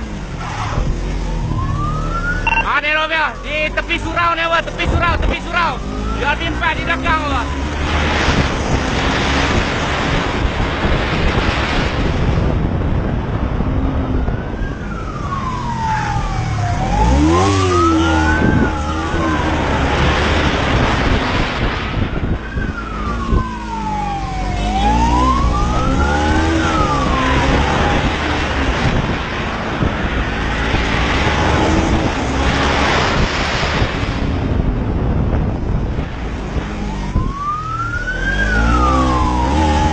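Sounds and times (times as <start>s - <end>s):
police siren wailing: 0.4s - 8.7s, 13.9s - 33.9s, 36.6s - 39.9s
wind on microphone: 7.5s - 39.9s.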